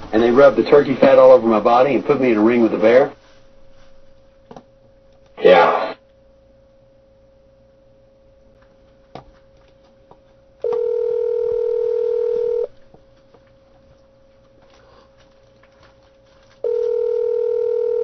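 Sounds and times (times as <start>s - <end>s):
phone line click: 10.6s - 12.7s, 16.6s - 18.0s
telephone ringback tone: 10.6s - 12.7s, 16.6s - 18.0s.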